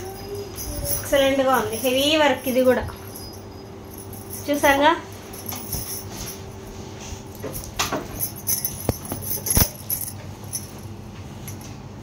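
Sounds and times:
glass bangles clinking: 0:00.0 - 0:06.6, 0:07.3 - 0:11.7
fabric rustling: 0:05.1 - 0:10.8.

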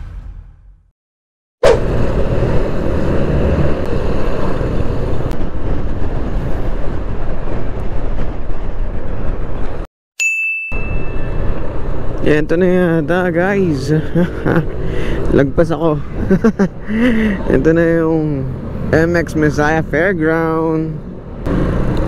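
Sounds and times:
motorcycle engine and road noise: 0:01.6 - 0:09.9, 0:10.8 - 0:22.0
wind rush on microphone: 0:01.7 - 0:09.9.

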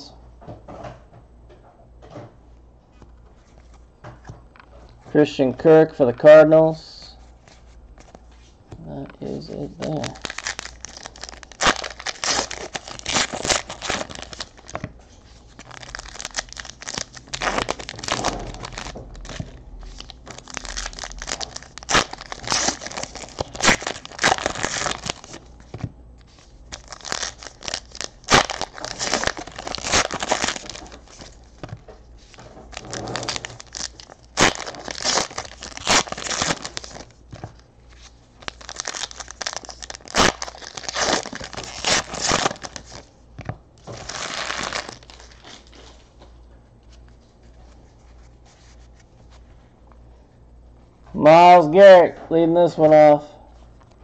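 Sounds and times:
foil wrappers tearing and crinkling: 0:09.2 - 0:14.8, 0:15.4 - 0:43.1, 0:43.8 - 0:45.9.

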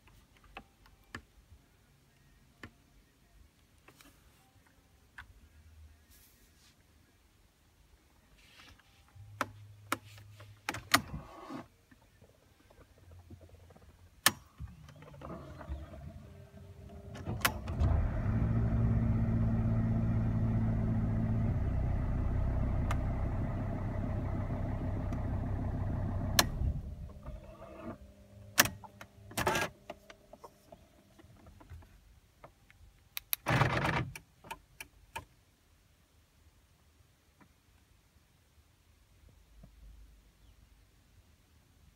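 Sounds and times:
diesel engine idling: 0:16.0 - 0:27.3.

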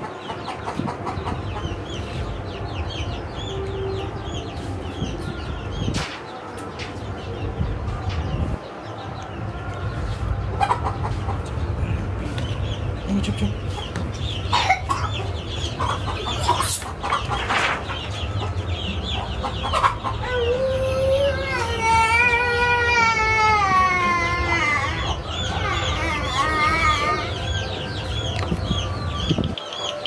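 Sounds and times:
chickens clucking: 0:00.0 - 0:30.0.

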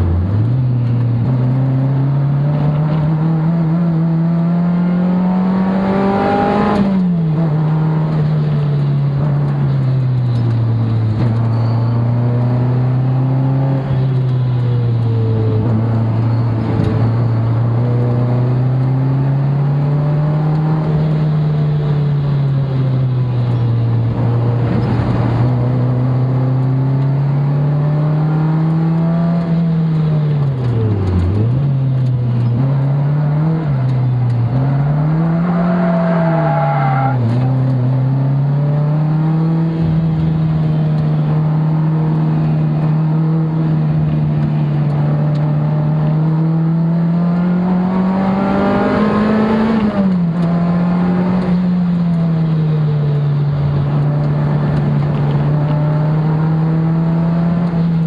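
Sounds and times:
sports car engine revving: 0:23.8 - 0:58.0.

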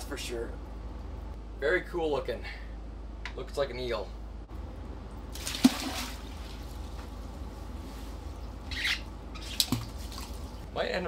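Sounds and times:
fish splashing into water: 0:05.3 - 0:06.7, 0:09.4 - 0:10.6.

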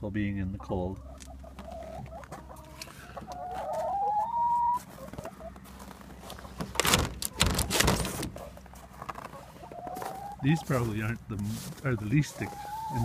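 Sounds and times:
hen calling: 0:00.9 - 0:05.6, 0:09.2 - 0:13.0
handling noise: 0:05.1 - 0:10.1.

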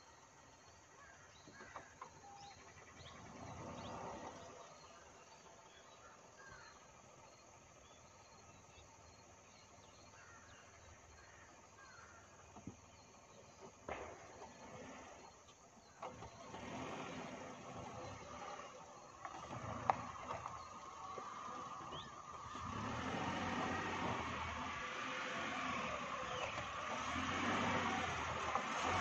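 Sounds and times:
distant car crawling over rocks: 0:00.0 - 0:29.0
small birds chirping: 0:17.2 - 0:22.6, 0:25.6 - 0:28.8.

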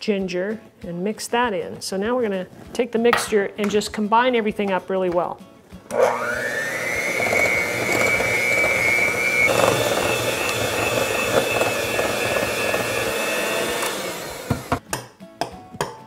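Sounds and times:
electric hand mixer whining: 0:05.9 - 0:14.8.

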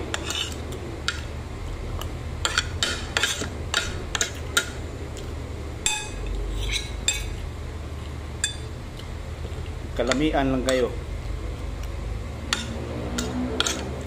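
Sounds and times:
cutlery clinking against a dish: 0:05.9 - 0:07.4, 0:12.5 - 0:13.9.

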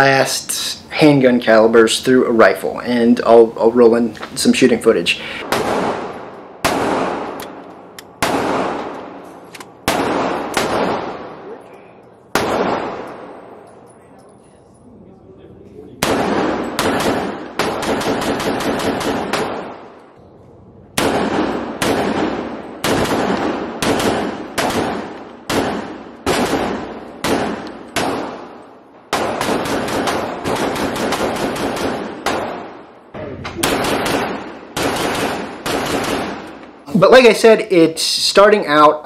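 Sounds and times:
gunshots echoing indoors: 0:05.3 - 0:11.6, 0:12.2 - 0:13.8, 0:16.0 - 0:36.8.

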